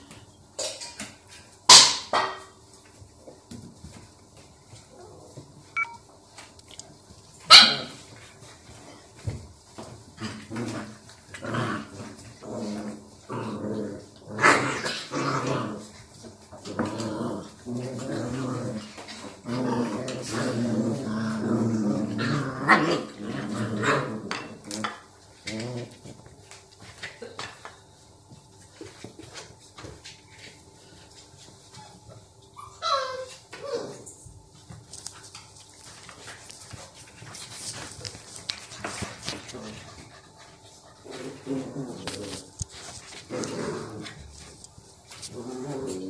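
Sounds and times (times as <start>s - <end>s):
dogs growling in play: 4.8s - 5.9s, 7.8s - 27.1s, 32.8s - 34.3s, 35.4s - 46.0s
dog yelping: 32.6s - 34.0s.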